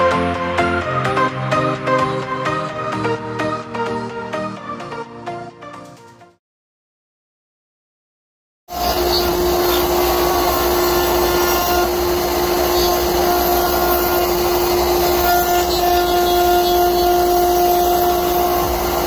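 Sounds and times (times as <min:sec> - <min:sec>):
router bit cutting wood: 0:08.7 - 0:19.0
router spindle whine: 0:08.7 - 0:19.0.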